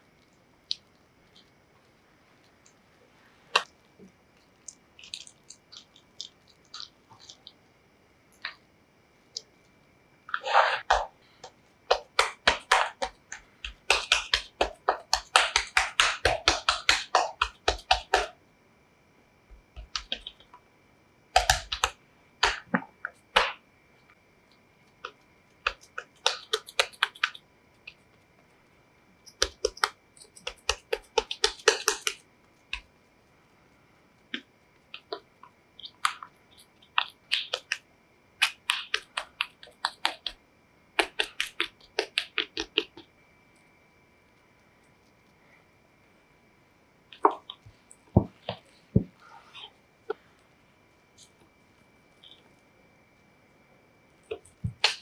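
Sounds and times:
spatula patting dough: 10.3 - 18.4, 19.5 - 20.6, 21.3 - 23.6, 24.9 - 28.2, 29.3 - 33.0, 34.3 - 37.8, 38.4 - 40.4, 41.0 - 43.0, 47.2 - 50.3, 54.3 - 55.0.

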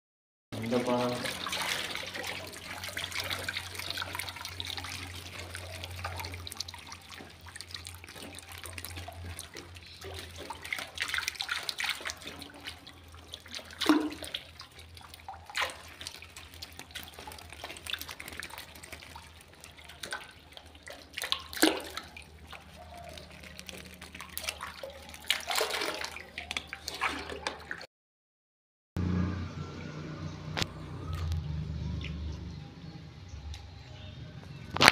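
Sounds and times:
water splashing and sloshing: 0.6 - 27.9, 34.4 - 34.9
low hum: 29.0 - 34.9.

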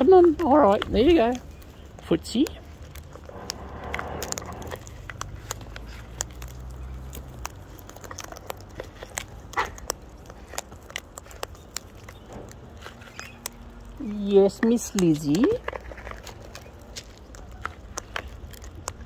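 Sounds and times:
cockatoos cracking seed: 0.0 - 19.0.

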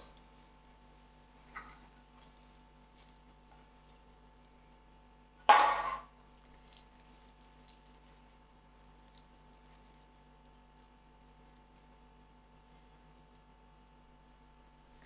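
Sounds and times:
hands rolling minced meat: 1.5 - 4.6, 6.3 - 12.4
spoon clattering in metal bowl: 5.5 - 6.1.

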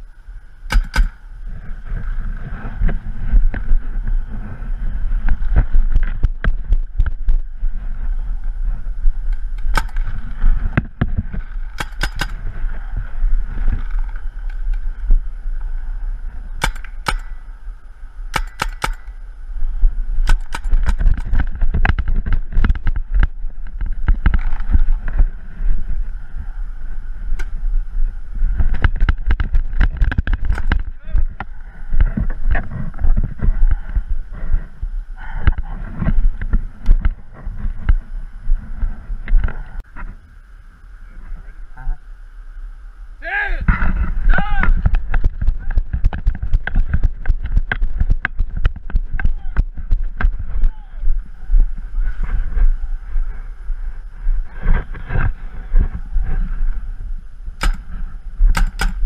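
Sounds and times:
low rumble on microphone: 0.0 - 59.0
paintball markers firing: 0.6 - 1.3, 9.3 - 10.9, 11.6 - 12.5, 16.6 - 17.5, 18.3 - 19.2, 20.2 - 22.9, 57.6 - 59.0.

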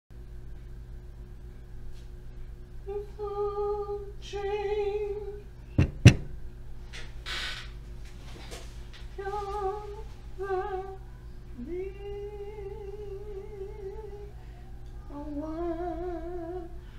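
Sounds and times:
woman singing slow held notes: 2.8 - 5.4, 9.2 - 16.8.

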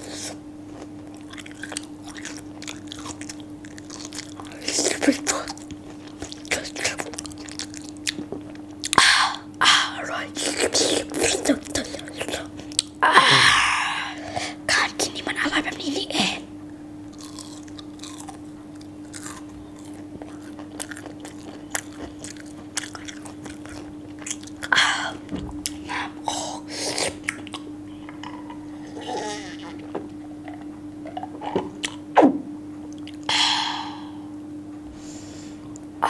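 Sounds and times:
chewing crispy food: 0.6 - 9.5, 17.1 - 28.6, 32.9 - 33.3
low hum: 27.2 - 36.0.

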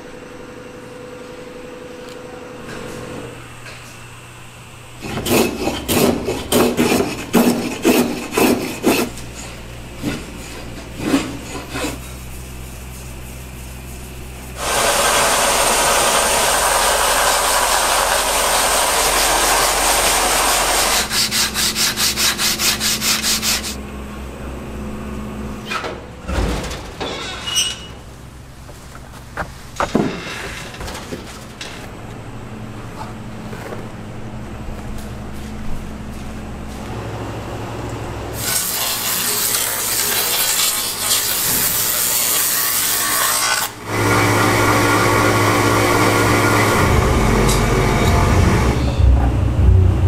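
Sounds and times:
rough rubbing strokes on wood: 11.6 - 23.8
power sander rasping wood: 14.6 - 23.8, 38.6 - 48.6.

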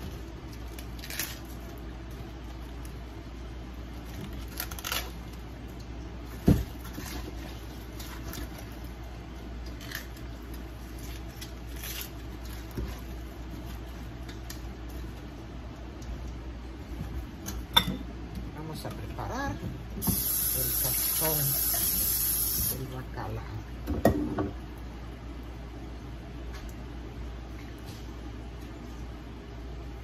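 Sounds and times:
cabbage crunching and snapping: 0.0 - 2.8, 4.0 - 5.9, 6.7 - 14.6.

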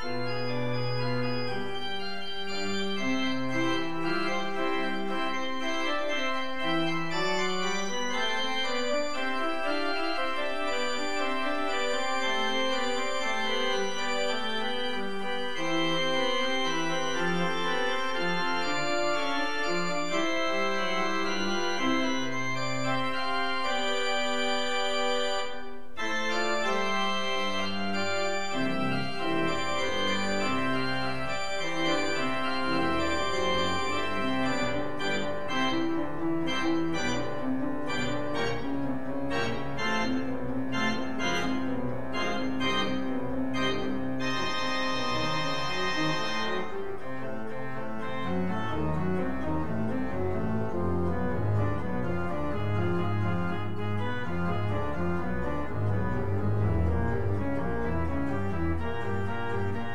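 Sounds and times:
church organ playing chords: 0.0 - 59.9.

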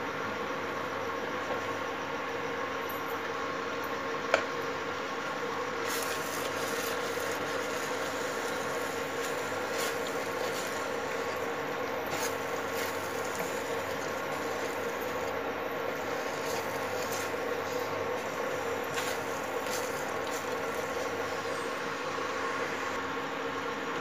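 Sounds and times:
kitchen hum: 4.9 - 23.5.

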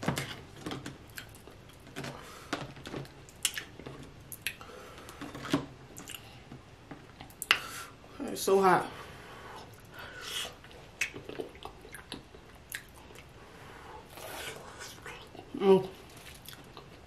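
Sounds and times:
wet chewing and mouth smacking: 3.3 - 4.6, 9.7 - 13.3, 16.2 - 17.0.

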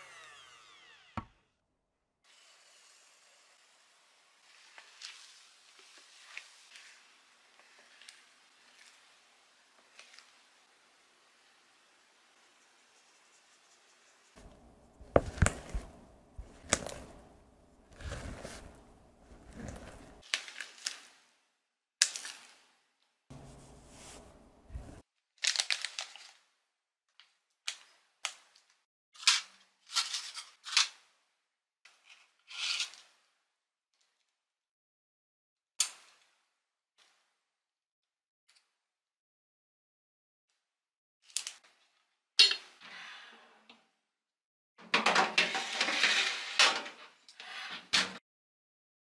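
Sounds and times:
flour sifting through sieve: 4.4 - 10.5, 12.3 - 20.3, 23.3 - 25.0
spatula scraping glass bowl: 14.4 - 20.2
plastic piping bag crinkling: 14.4 - 21.0.

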